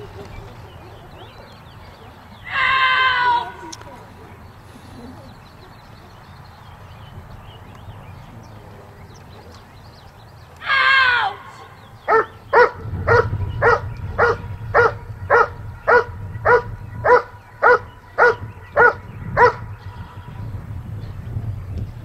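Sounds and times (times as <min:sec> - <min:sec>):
dog barking: 0:12.1 - 0:19.7.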